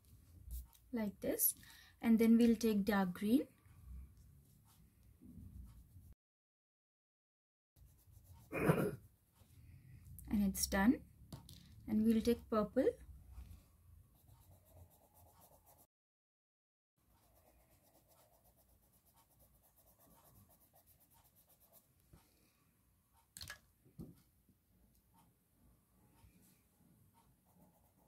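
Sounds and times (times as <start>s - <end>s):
crayon scratching on paper: 7.8s - 8.5s, 14.2s - 15.9s, 17.1s - 21.9s, 27.5s - 28.0s.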